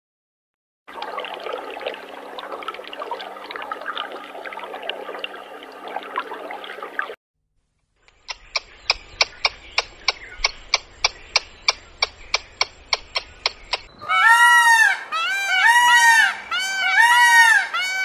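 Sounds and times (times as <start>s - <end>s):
squirrel making sharp clicks: 8.1s - 13.9s
peacock honking calls: 14.0s - 18.0s.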